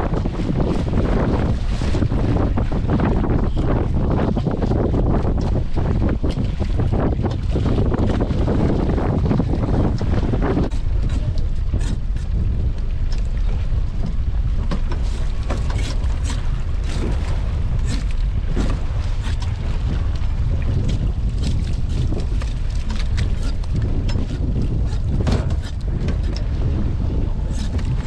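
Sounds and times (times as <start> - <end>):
pot hauler hauling rope: 0.0 - 28.0
water splashes: 0.0 - 28.0
wind rumbling on microphone: 0.0 - 28.0
rope clicks and knocks: 9.9 - 19.6, 20.8 - 26.5.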